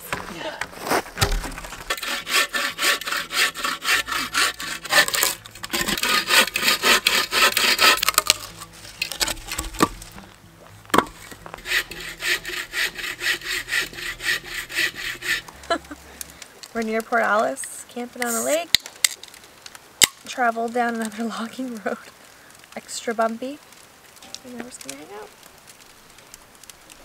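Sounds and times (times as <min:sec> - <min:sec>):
hand saw cutting a log: 0:00.8 - 0:10.2, 0:11.0 - 0:16.0
sharp knocks: 0:10.9 - 0:11.4.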